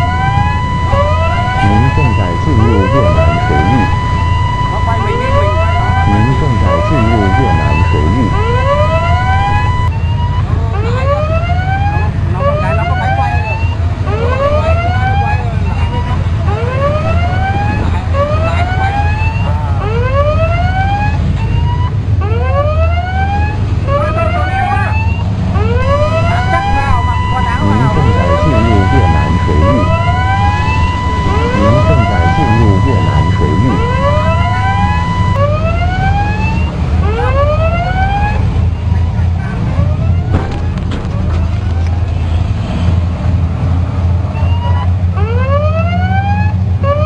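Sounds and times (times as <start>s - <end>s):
steady beeping tone: 0.0s - 9.9s, 16.6s - 19.3s, 25.4s - 35.9s
steady low rumble: 0.0s - 10.0s, 25.3s - 35.7s
ship siren whooping: 0.0s - 39.2s, 44.3s - 47.0s.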